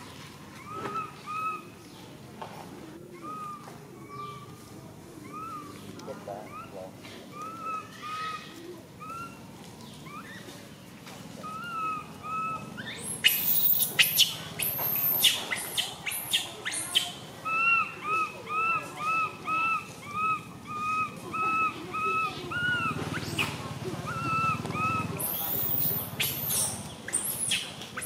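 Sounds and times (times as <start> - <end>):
infant monkey coo calls: 0.6 - 1.9, 3.0 - 4.6, 5.2 - 10.6, 11.4 - 28.0
monkey shrill screams: 11.7 - 17.9, 24.1 - 28.0.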